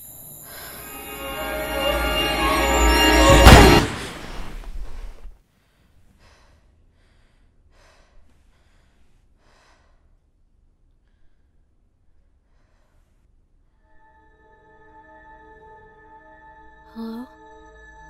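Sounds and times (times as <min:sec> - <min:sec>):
loud music: 0:00.8 - 0:04.0
woman breathing heavily: 0:05.6 - 0:10.4, 0:11.0 - 0:13.3.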